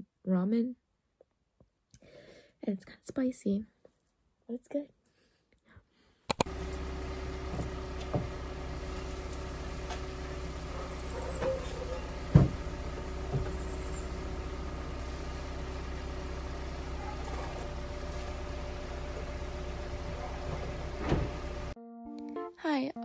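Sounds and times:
car engine idling: 6.4 - 21.8
car door unlatching and opening: 9.3 - 14.3, 18.9 - 21.7.

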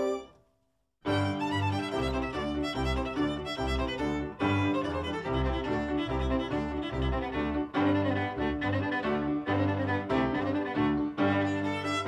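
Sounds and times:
strings: 0.0 - 0.4, 1.1 - 12.0
violin melody: 0.0 - 0.4, 1.1 - 12.0.

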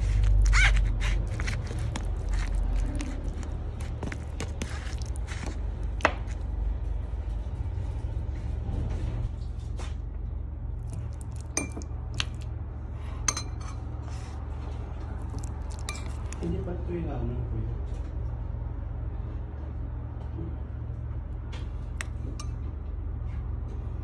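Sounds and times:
spoon scraping food container: 0.0 - 6.4, 15.2 - 16.4
steady low hum: 0.0 - 24.0.

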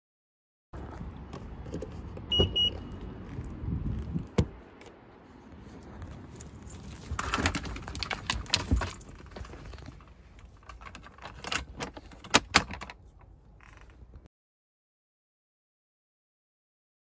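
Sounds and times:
pet carrier wire door rattling: 7.1 - 10.0.

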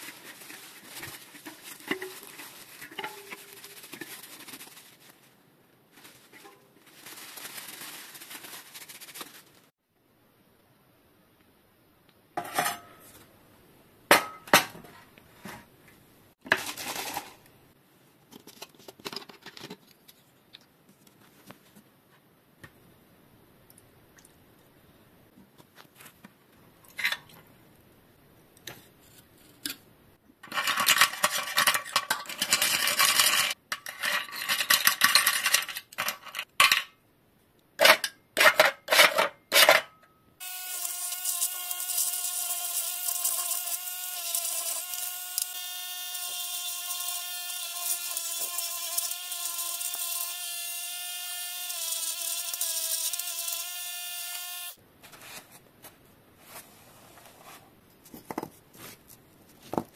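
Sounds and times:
rubbing and scraping: 0.0 - 9.7
small motor running: 40.4 - 54.8.

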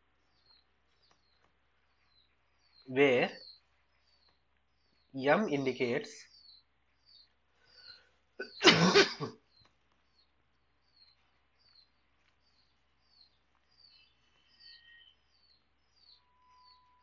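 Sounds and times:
small birds chirping: 0.0 - 17.0
person coughing: 8.4 - 9.4.

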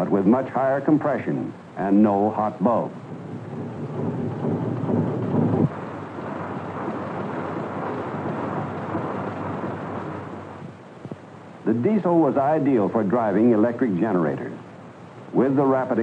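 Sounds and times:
diesel engine clattering: 3.0 - 11.6.

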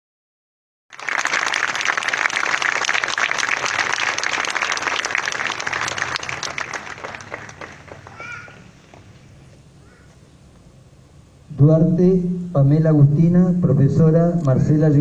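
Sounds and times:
audience applauding: 0.9 - 9.2.

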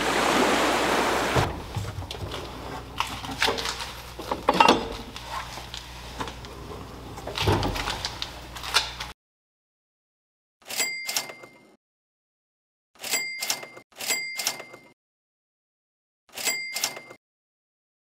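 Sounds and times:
metal drawers sliding: 0.0 - 5.2, 6.6 - 8.1
metal tools clacking and rattling: 3.3 - 5.1.

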